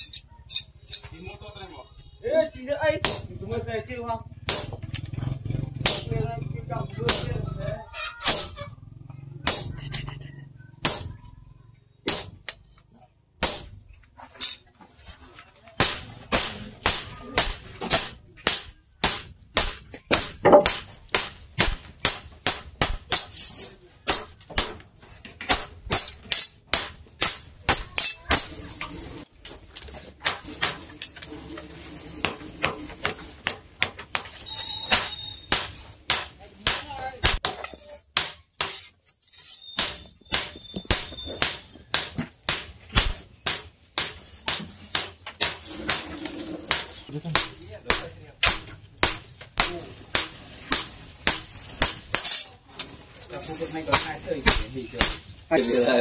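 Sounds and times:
hammer striking metal on anvil: 3.0 - 3.4, 4.5 - 5.2, 5.8 - 6.2, 7.1 - 7.4, 9.4 - 10.1, 10.8 - 11.2, 12.0 - 12.8, 13.4 - 13.8, 15.8 - 28.6, 32.6 - 38.9, 46.7 - 52.5, 53.9 - 55.3.

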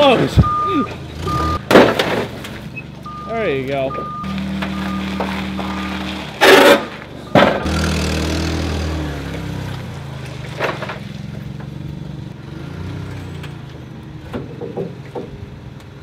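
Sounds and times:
forklift engine running: 0.0 - 14.3.

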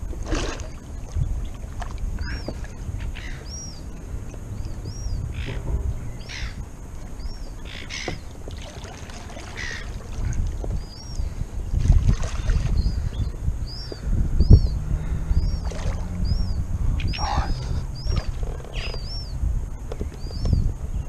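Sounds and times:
fish splashing in water: 0.0 - 3.4, 7.7 - 10.8, 11.7 - 12.8, 15.6 - 16.2
wind rumble on microphone: 0.0 - 21.0
bird chirping: 2.2 - 8.4, 10.6 - 11.8, 12.4 - 21.0.

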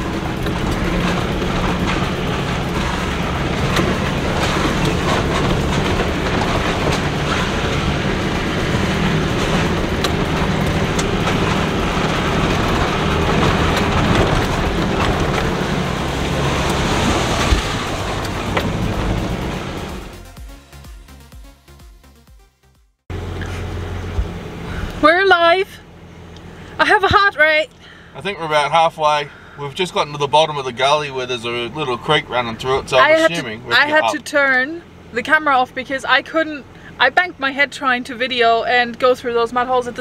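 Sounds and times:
vehicle body rattling and knocking: 0.0 - 20.1
engine droning: 0.0 - 40.0.

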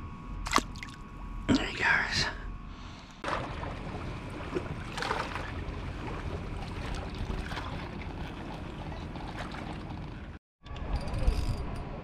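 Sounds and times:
lapping river water: 3.2 - 10.4.

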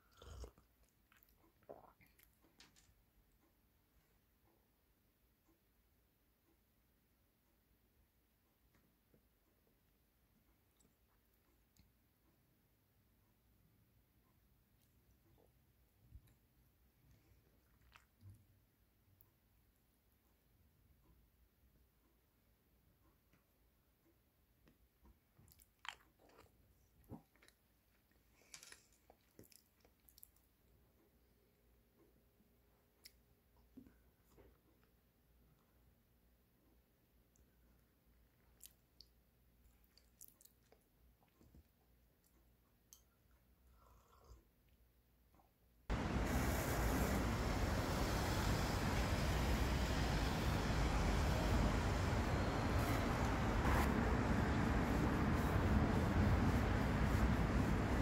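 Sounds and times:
soft chewing: 0.0 - 3.6, 10.5 - 12.2, 14.5 - 19.4, 24.5 - 36.0, 37.2 - 45.0
road traffic rumble: 45.9 - 58.0
wind on microphone: 46.0 - 58.0.

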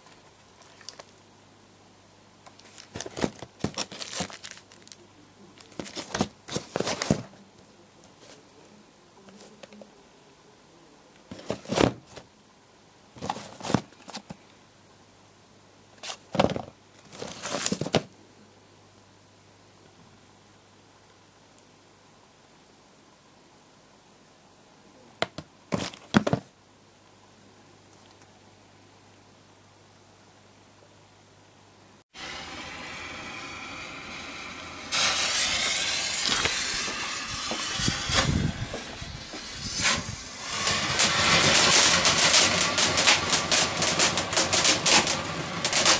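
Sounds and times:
cardboard and plastic packs rustling: 0.0 - 1.2, 2.5 - 5.0, 5.6 - 7.4, 11.3 - 12.3, 13.2 - 14.4, 16.0 - 18.1, 25.3 - 26.5
firework crackles: 32.2 - 45.9
firework spraying sparks hiss: 32.2 - 45.9.

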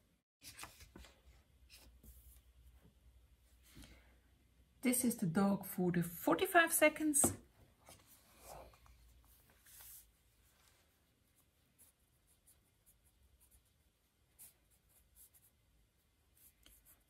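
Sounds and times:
pen scratching on paper: 11.4 - 15.6, 16.3 - 17.0.

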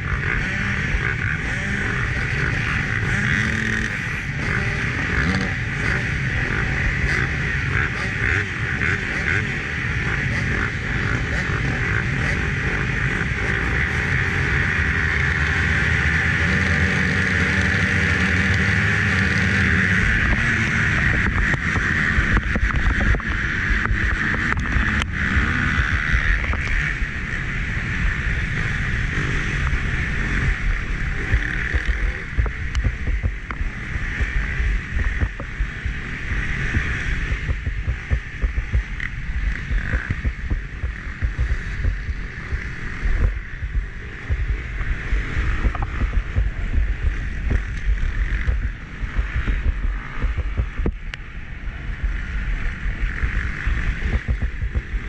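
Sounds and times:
dirt bike engine racing: 0.0 - 55.0
sharp clicks and knocks: 21.1 - 25.1, 31.3 - 36.0, 36.7 - 51.2, 54.0 - 55.0
wind buffeting on microphone: 30.1 - 55.0.

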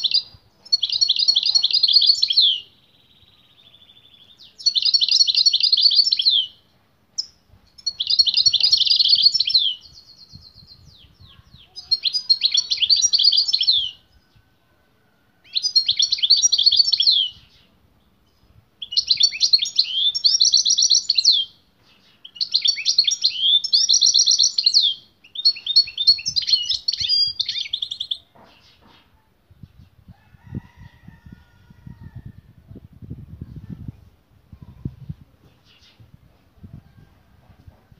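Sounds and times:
goldfinch singing: 7.2 - 14.1, 15.5 - 17.7, 18.8 - 29.0.

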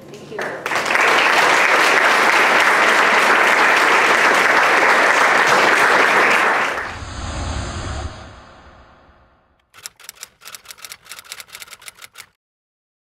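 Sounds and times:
audience applause: 0.4 - 7.0.

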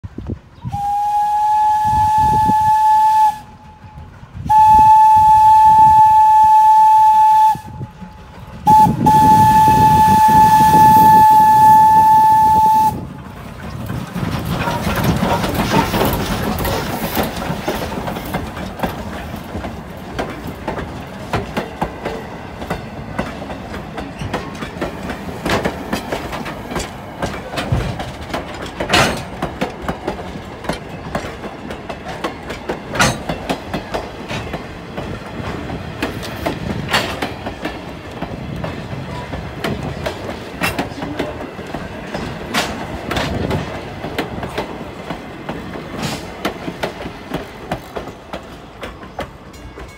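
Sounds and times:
train rolling past: 0.0 - 49.9
steam whistle blasts: 0.6 - 3.7, 4.5 - 7.9, 8.6 - 13.1
wheels clicking over rail joints: 7.0 - 49.9.

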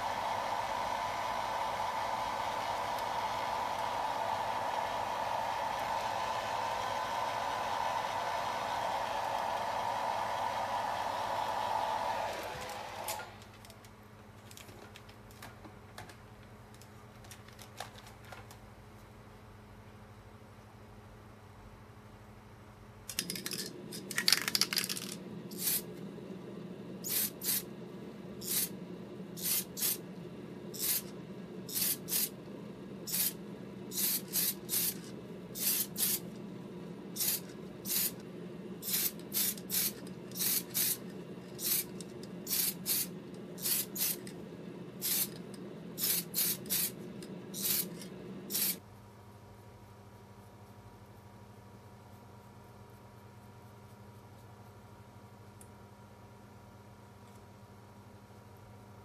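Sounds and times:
fan humming: 0.0 - 19.1, 23.0 - 49.0
spray paint can hissing: 24.3 - 25.9, 27.0 - 27.7, 28.4 - 28.7, 29.4 - 30.0, 30.7 - 31.1, 31.7 - 32.4, 33.1 - 36.2, 37.2 - 38.2, 38.8 - 44.3, 45.0 - 45.4, 46.0 - 48.8.

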